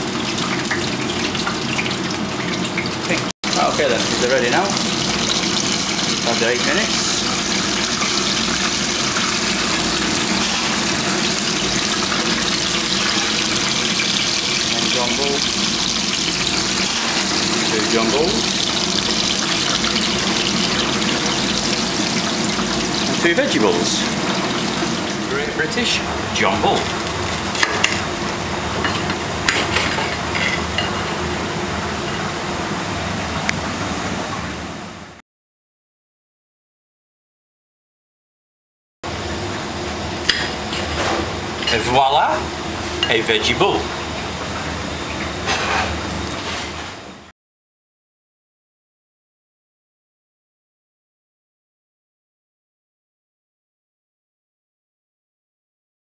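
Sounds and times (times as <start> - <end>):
food deep-frying in oil: 0.0 - 34.0
kitchen machinery hum: 0.0 - 35.2, 39.0 - 47.3.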